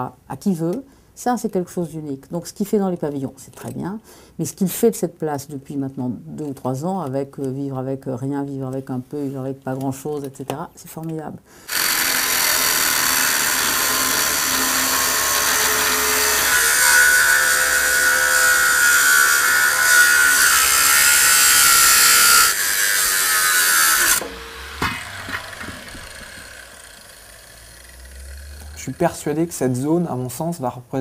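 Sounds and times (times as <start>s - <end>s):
angle grinder cutting metal: 11.7s - 30.1s.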